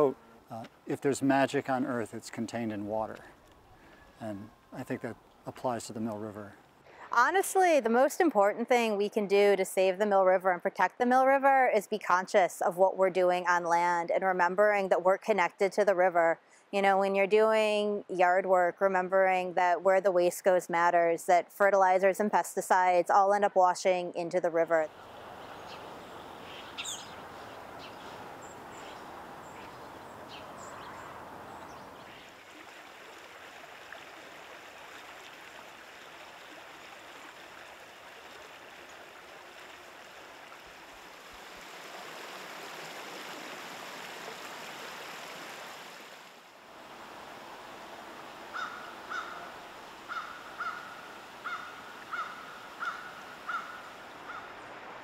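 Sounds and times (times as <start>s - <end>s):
river water rushing: 24.9s - 55.0s
faint bird chirps: 25.4s - 32.3s
bird giving short calls: 25.5s - 30.9s, 48.5s - 49.5s, 50.1s - 54.5s.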